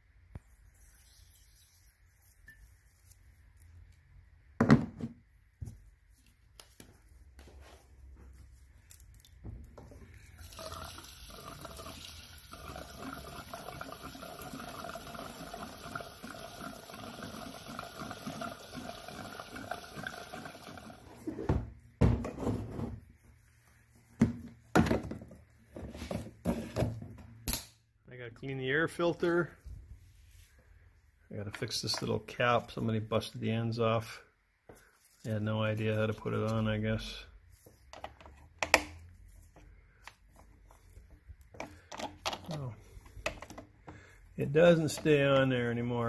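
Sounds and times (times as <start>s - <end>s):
gasoline pouring into fuel tank: 10.3s - 21.3s.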